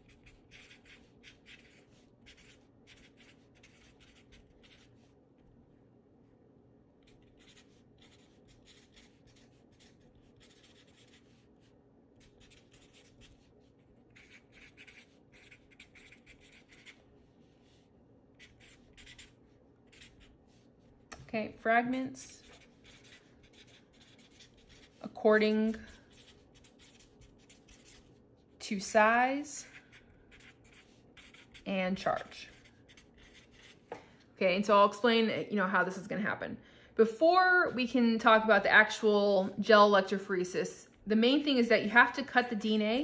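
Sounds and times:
marker writing on paper: 0.0 - 5.0, 7.0 - 20.6, 22.2 - 28.2, 29.9 - 33.9
faint low hum: 0.0 - 43.0.

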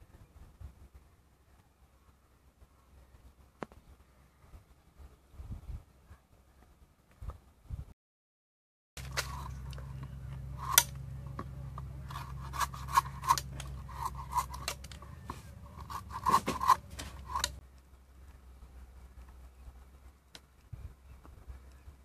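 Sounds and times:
blade scraping hard shell: 9.0 - 17.6.

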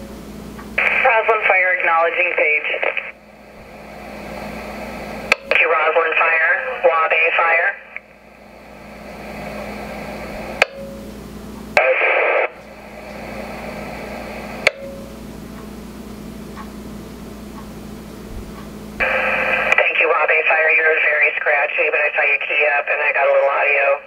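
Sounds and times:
garbled radio audio: 0.8 - 8.2, 11.8 - 14.6, 19.0 - 24.0
radio static hiss: 0.8 - 10.6, 11.6 - 14.7, 19.0 - 24.0.

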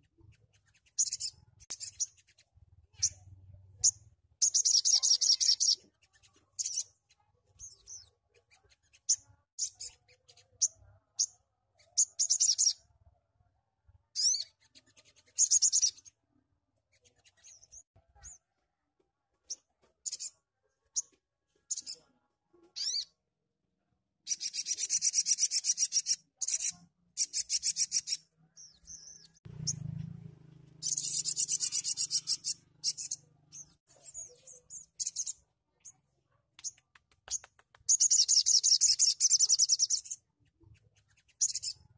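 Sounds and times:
bird chirps: 0.0 - 13.0, 14.1 - 16.2, 16.9 - 18.6, 19.4 - 23.2, 24.2 - 41.9
bird singing rapid trills: 0.2 - 12.9, 14.2 - 16.1, 24.3 - 29.9, 30.8 - 35.4, 37.9 - 40.2, 41.1 - 41.9.

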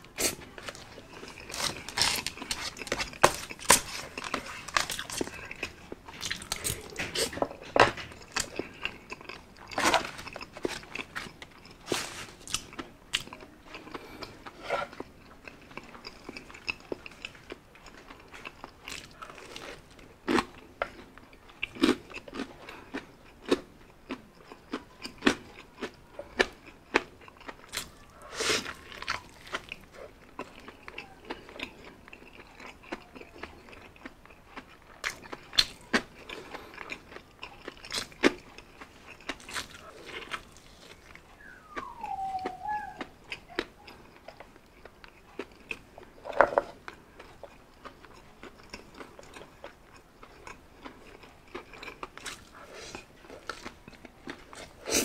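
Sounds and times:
crunching fried chicken: 0.0 - 55.0
wet chewing of spaghetti: 0.0 - 55.0
mouth clicks: 41.4 - 44.0.

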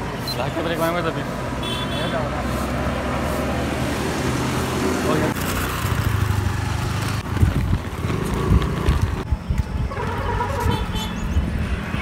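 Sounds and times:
road traffic: 0.0 - 12.0
skate wheels rolling over paving: 6.9 - 9.3
wind buffeting microphone: 7.2 - 12.0.

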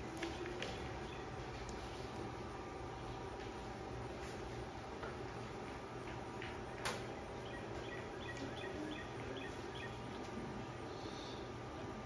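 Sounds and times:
faint steady hum: 0.0 - 12.0
bird chirping: 7.0 - 10.2.

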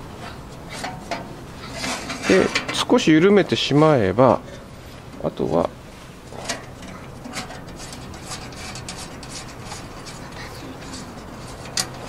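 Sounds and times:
low steady hum: 0.0 - 12.0
metallic clicks and scrapes: 0.2 - 3.0, 6.2 - 12.0.

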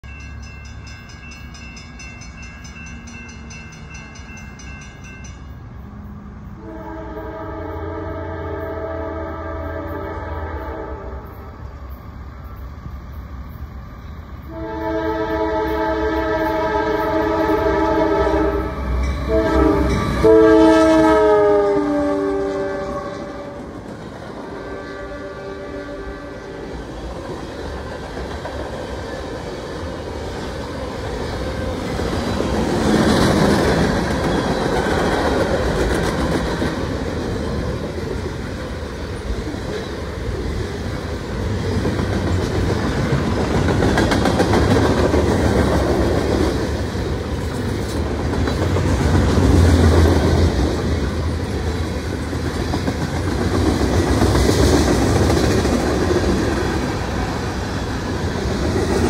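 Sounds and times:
locomotive air horn blasts: 6.6 - 11.6, 14.4 - 23.8, 24.5 - 26.6.

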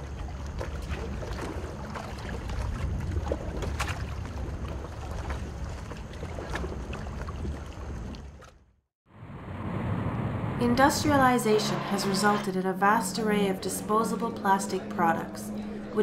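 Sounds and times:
water splashing around boat: 0.0 - 8.7
low rumble: 9.1 - 16.0.

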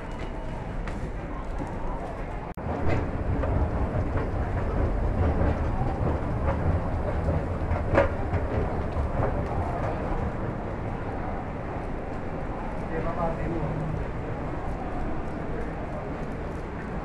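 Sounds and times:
escalator mechanical rumble: 2.6 - 11.4.

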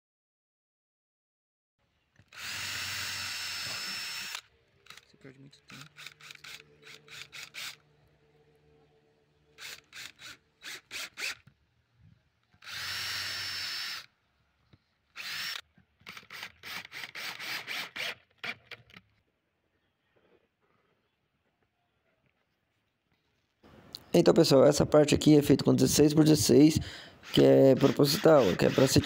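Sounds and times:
power drill driving screws into wood: 2.2 - 5.0, 5.7 - 7.8, 9.6 - 11.6, 12.5 - 14.2, 15.1 - 19.0, 26.8 - 29.0.

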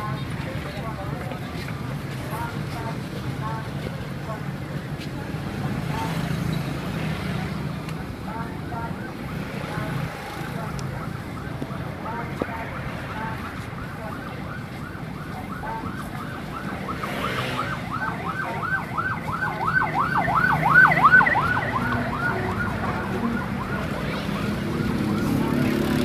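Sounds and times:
street traffic rumble: 0.0 - 26.0
siren yelping: 8.9 - 26.0.

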